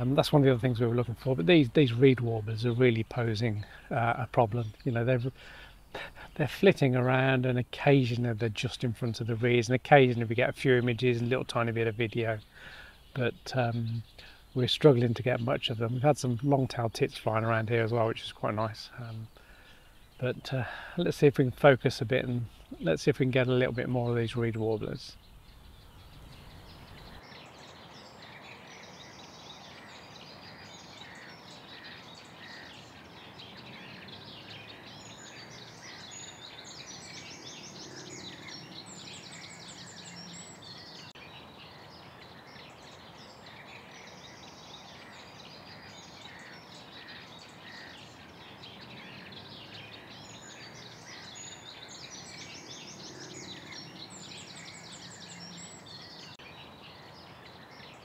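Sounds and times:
background hiss: 0:00.0 - 0:58.0
reed warblers chattering: 0:00.0 - 0:58.0.

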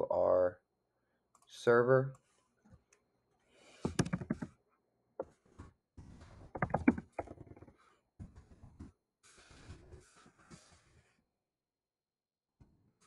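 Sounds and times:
computer keyboard typing: 0:03.9 - 0:04.5, 0:06.6 - 0:07.6.

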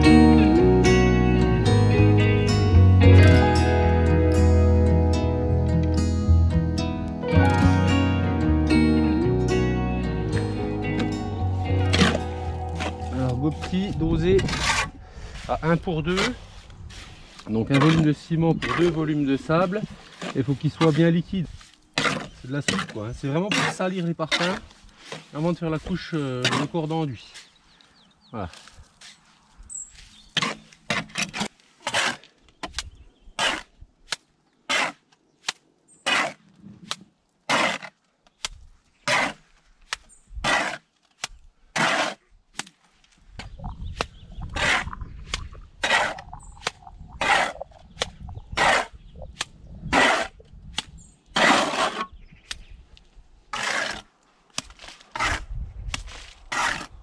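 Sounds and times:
low rumble: 0:09.3 - 0:17.2, 0:43.4 - 0:50.6
trowel scraping and throwing cement: 0:11.9 - 0:27.5, 0:29.0 - 0:38.0, 0:39.0 - 0:52.2, 0:53.5 - 0:57.0.

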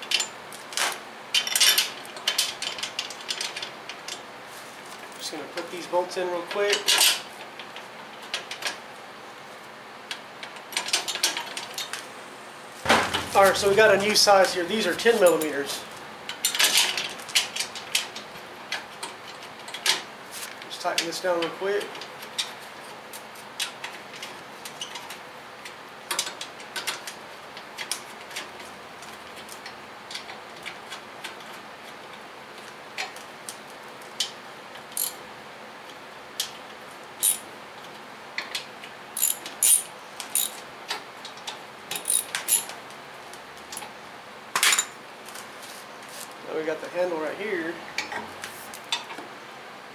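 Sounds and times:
wrench clicking on bolts: 0:35.0 - 0:35.2, 0:37.2 - 0:37.4, 0:39.2 - 0:40.6, 0:41.9 - 0:42.7.

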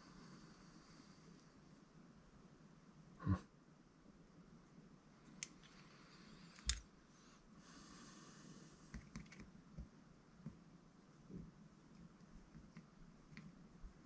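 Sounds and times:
soft hiss: 0:00.0 - 0:14.0
small plastic parts clicking: 0:06.5 - 0:06.8.

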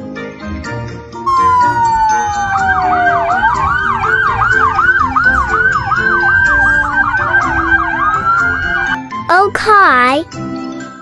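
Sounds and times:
police siren yelping: 0:01.3 - 0:09.0
slower siren tone gliding down: 0:01.3 - 0:09.0.

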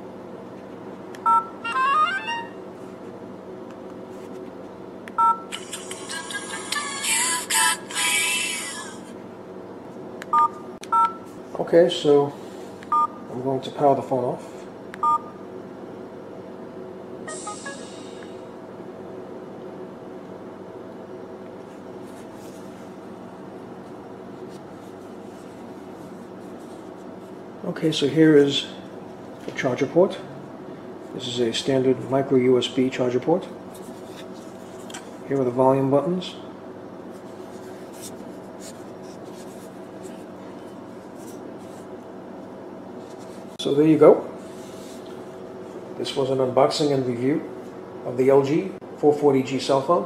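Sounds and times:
room hum: 0:00.0 - 0:50.0
phone message alert tones: 0:01.3 - 0:02.6, 0:17.3 - 0:18.0
phone key beep: 0:10.3 - 0:11.2, 0:15.0 - 0:15.3.

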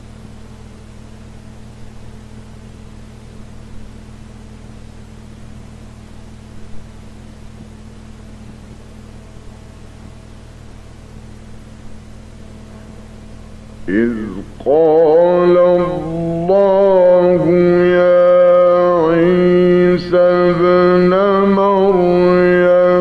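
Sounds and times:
mains hum and hiss: 0:00.0 - 0:23.0.

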